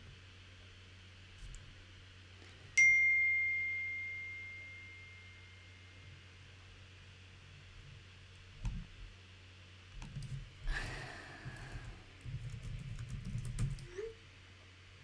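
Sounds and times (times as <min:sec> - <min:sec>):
breathy sound: 0:10.7 - 0:12.0
computer keyboard typing: 0:11.6 - 0:13.9.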